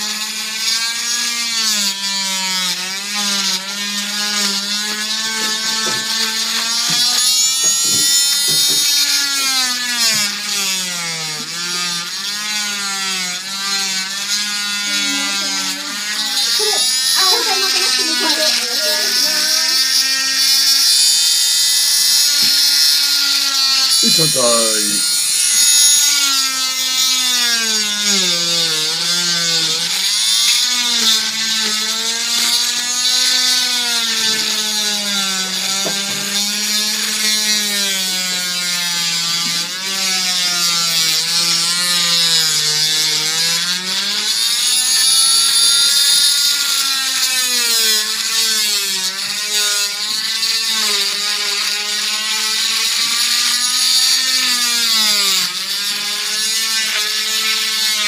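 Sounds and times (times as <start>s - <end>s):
cast saw motor whine: 0.0s - 58.0s
saw cutting hiss: 14.8s - 37.8s.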